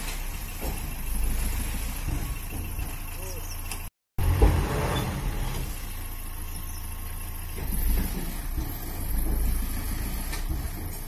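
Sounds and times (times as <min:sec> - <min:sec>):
diesel truck engine running: 0:00.0 - 0:11.0.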